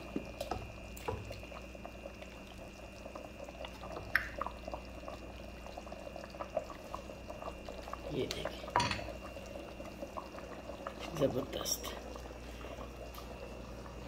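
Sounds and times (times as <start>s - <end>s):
ladle knocking metal pot: 8.8s - 9.1s.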